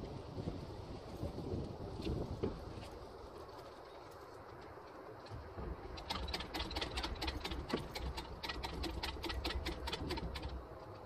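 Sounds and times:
engine hoist clicking and rattling: 0:05.9 - 0:11.0.

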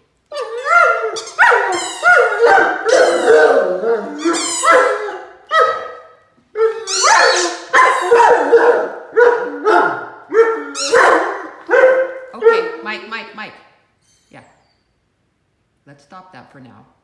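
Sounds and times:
puppy howling and barking: 0:00.3 - 0:12.9.

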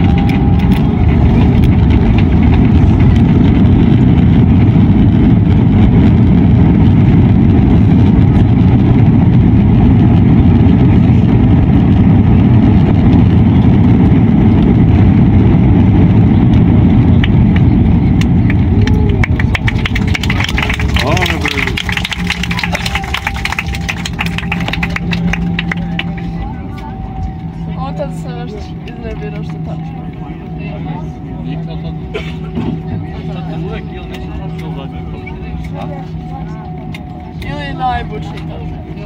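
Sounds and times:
jet engines roaring: 0:00.0 - 0:39.0
wheels rumbling on runway: 0:00.0 - 0:39.0.

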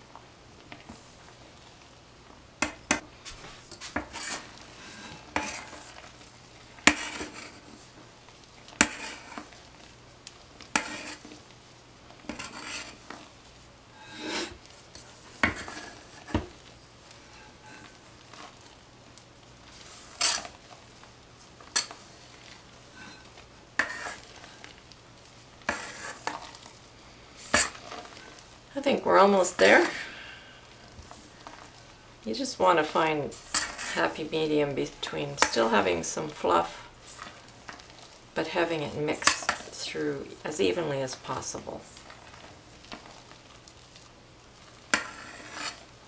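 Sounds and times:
spatula scraping metal bowl: 0:03.8 - 0:06.1, 0:06.8 - 0:07.8, 0:08.8 - 0:09.6, 0:10.7 - 0:11.4, 0:12.3 - 0:13.2, 0:14.0 - 0:14.6, 0:15.4 - 0:16.4, 0:20.0 - 0:20.6, 0:22.9 - 0:24.6, 0:25.7 - 0:26.6, 0:27.4 - 0:28.3, 0:33.2 - 0:34.3, 0:44.9 - 0:45.9.

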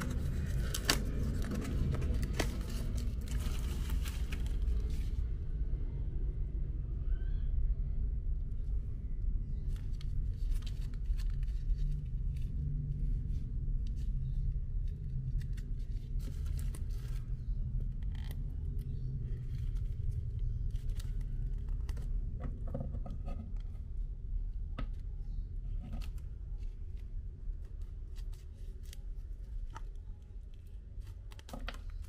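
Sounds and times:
plastic packaging crinkling: 0:00.0 - 0:05.0
steady low rumble: 0:00.0 - 0:32.0.

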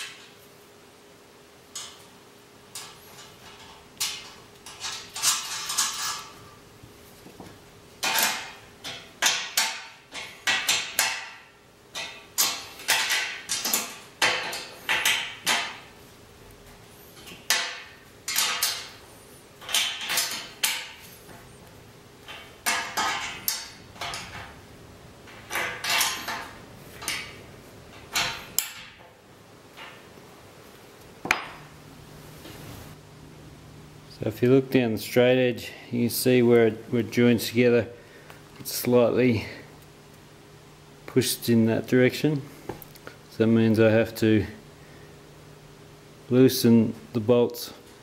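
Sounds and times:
metal bolts clinking on bracket: 0:17.3 - 0:18.9, 0:25.3 - 0:27.4, 0:28.0 - 0:29.1.

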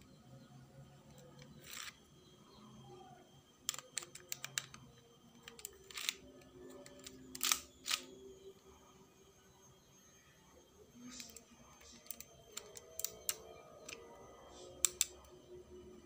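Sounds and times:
plastic toy pistol clicks: 0:03.7 - 0:04.8, 0:06.8 - 0:08.1, 0:14.8 - 0:15.1.

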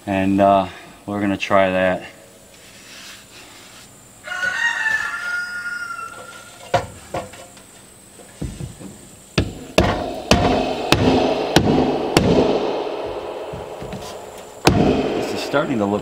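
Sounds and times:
rooster crowing: 0:04.2 - 0:06.7
mallet striking plastic pipe: 0:09.4 - 0:12.7.

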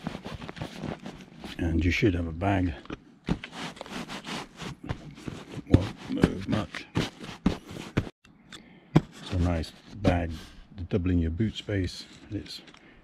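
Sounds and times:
hand patting and rubbing fabric bag: 0:00.0 - 0:01.6, 0:03.3 - 0:08.2.

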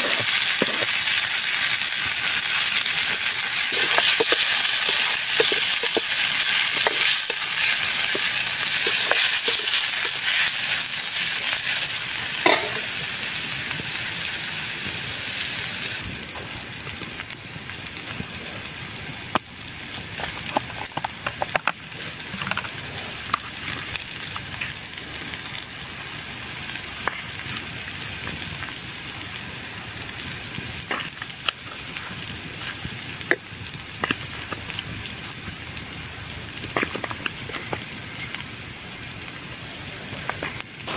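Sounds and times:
vegetables sizzling in frying pan: 0:00.0 - 0:40.9
spoon stirring: 0:03.7 - 0:10.4.

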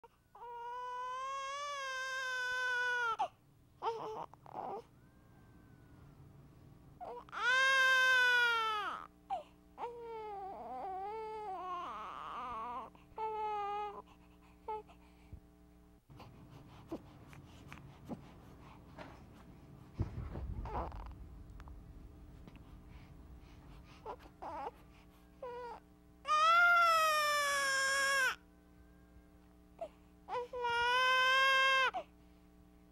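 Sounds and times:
baby crying: 0:00.4 - 0:04.9, 0:07.0 - 0:14.0, 0:20.6 - 0:21.2, 0:24.0 - 0:24.8, 0:25.4 - 0:28.4, 0:29.8 - 0:32.1.

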